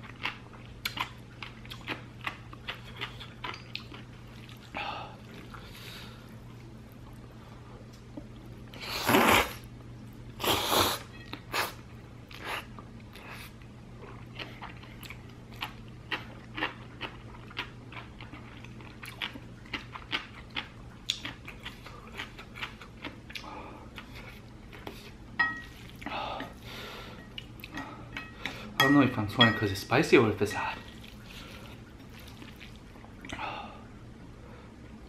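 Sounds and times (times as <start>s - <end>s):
chewing with wet mouth clicks: 0.0s - 4.7s, 12.3s - 25.0s, 30.9s - 33.4s
slurping noodles: 8.8s - 9.6s.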